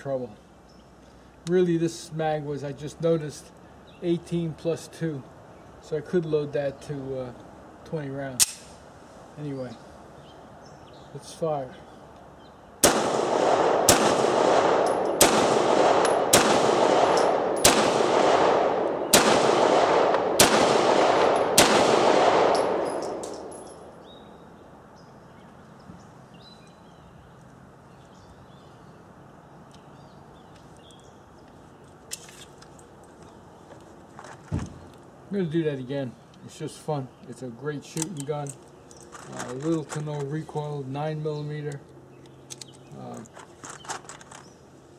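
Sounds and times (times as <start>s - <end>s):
pistol handling click: 8.4s - 8.8s, 13.6s - 20.6s, 21.2s - 23.8s
pistol shots echoing: 12.8s - 23.9s.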